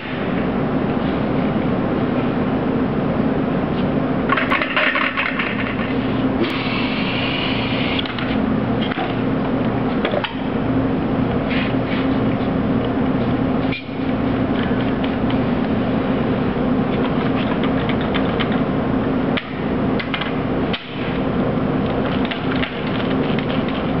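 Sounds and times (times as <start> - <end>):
industrial machinery humming: 0.0 - 24.0
mechanical clicks and clacks: 16.9 - 18.7, 19.4 - 21.0, 21.8 - 24.0.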